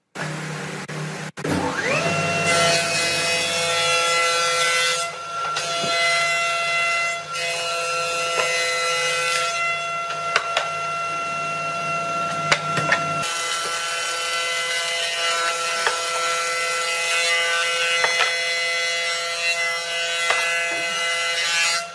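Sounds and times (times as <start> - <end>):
cutter head planing wood: 0.2 - 11.3, 12.2 - 21.9
thickness planer whining: 0.2 - 21.9.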